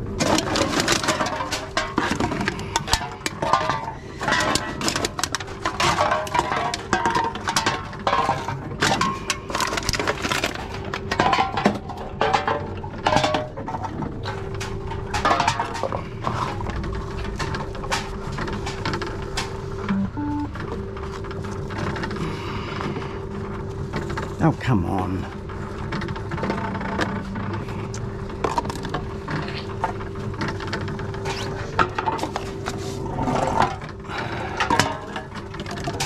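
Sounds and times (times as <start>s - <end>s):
cans and bottles clattering: 0.0s - 19.1s.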